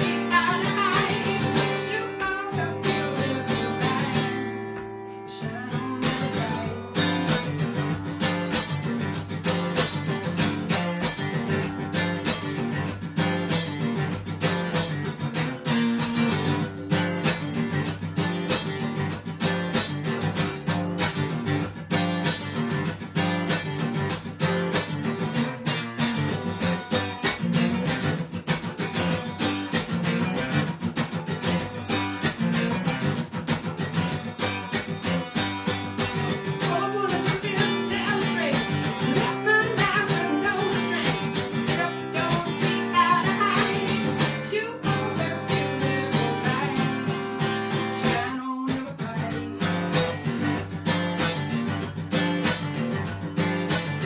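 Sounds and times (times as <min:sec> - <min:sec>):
man singing: 0:00.0 - 0:07.8, 0:36.2 - 0:50.2
acoustic guitar strumming chords: 0:00.0 - 0:54.0.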